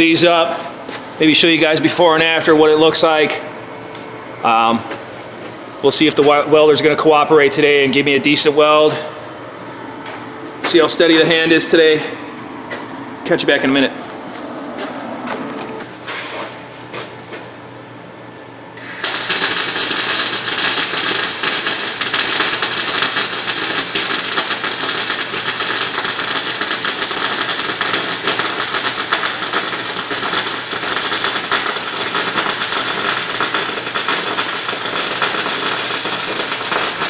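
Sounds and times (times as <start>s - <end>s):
welder arc crackling and sizzling: 18.8s - 37.0s.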